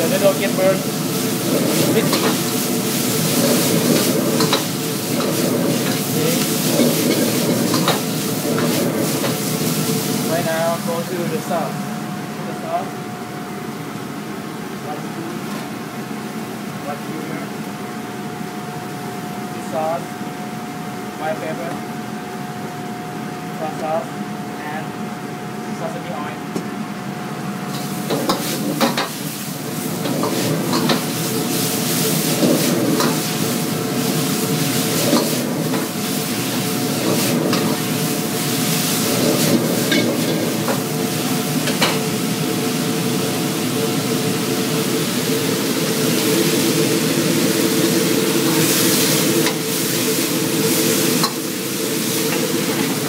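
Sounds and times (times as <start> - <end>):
noodles sizzling in a wok: 0.0 - 10.8, 27.7 - 53.0.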